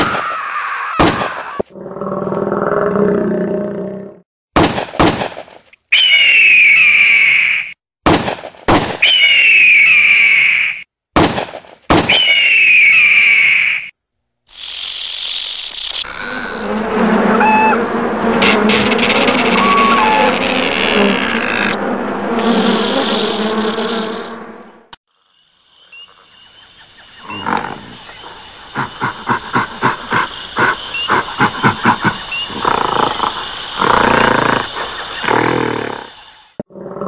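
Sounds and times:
steady hiss: 14.5 - 16.1, 25.1 - 36.6
large beast roaring: 16.0 - 22.3, 31.3 - 37.0
rapid rhythmic grunts: 28.7 - 35.3.

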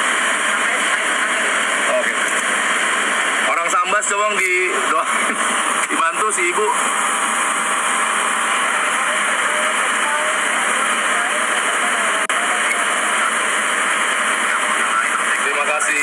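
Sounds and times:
ventilation air rushing: 0.0 - 16.0
faint voices: 8.2 - 16.0.

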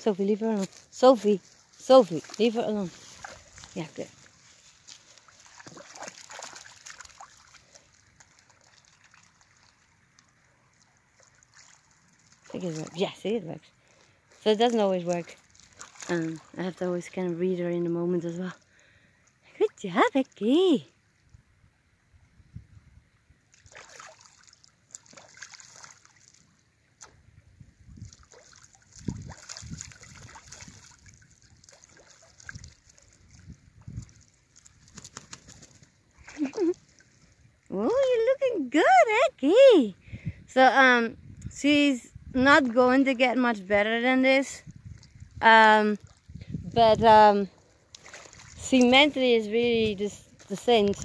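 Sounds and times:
shallow water splashing: 0.0 - 17.7, 23.5 - 27.2, 27.9 - 37.7, 44.6 - 49.4
faint water trickle: 0.0 - 21.4, 22.6 - 51.0.

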